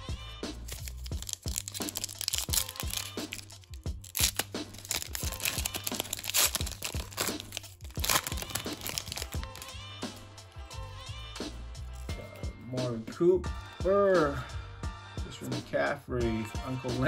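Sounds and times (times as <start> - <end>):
background music: 0.0 - 17.0
cards clicking and snapping: 0.5 - 9.7
plastic wrapper crinkling and tearing: 0.5 - 9.8.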